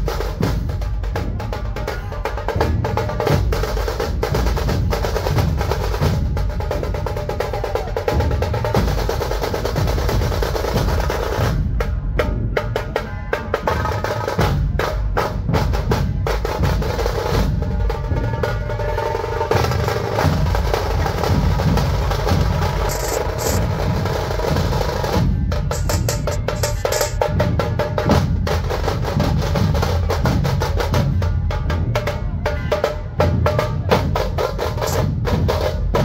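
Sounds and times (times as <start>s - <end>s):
fast rattling drum rolls: 15.3s - 31.3s
deep drum beats: 19.6s - 32.0s.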